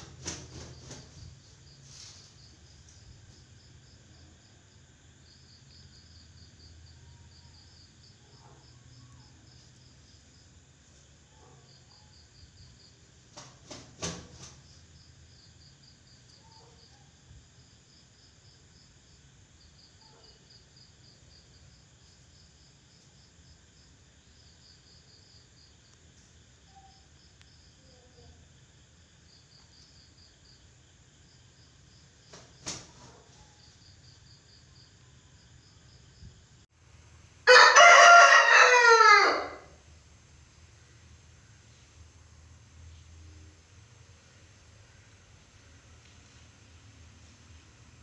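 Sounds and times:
faint insect chirping: 0.0 - 37.6, 39.5 - 48.0
rooster crowing: 37.5 - 39.8.

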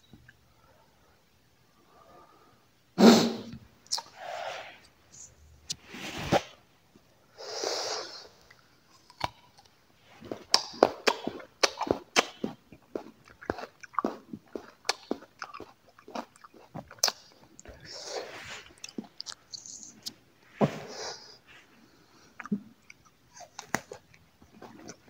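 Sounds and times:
apple crunching: 10.3 - 17.5.

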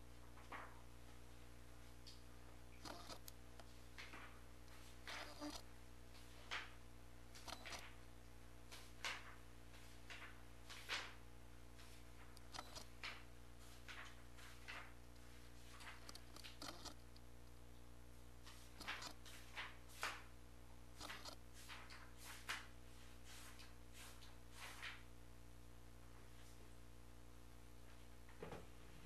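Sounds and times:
low room hum: 0.0 - 29.0
faint clicks and rustles: 0.3 - 8.0, 11.8 - 20.3.

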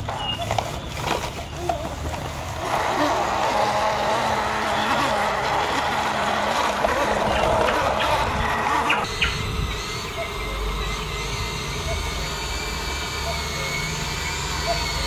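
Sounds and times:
toy truck electric motor whirring: 0.0 - 15.0.

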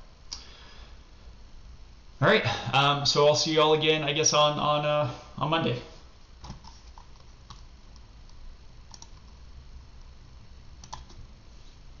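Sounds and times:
faint low hum: 0.0 - 12.0
computer mouse clicks: 6.4 - 9.4, 10.8 - 11.2.

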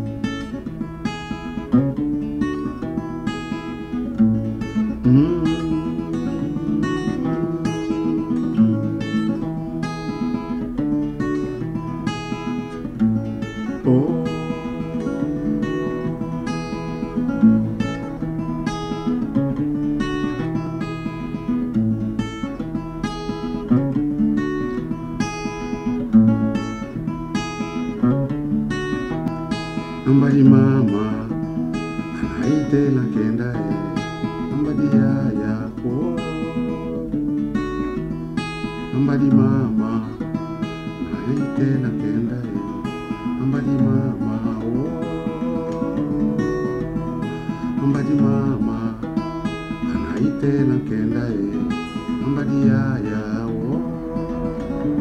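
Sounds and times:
acoustic guitar strumming: 0.0 - 55.0
man singing: 3.6 - 10.6, 13.4 - 19.0, 29.6 - 55.0.

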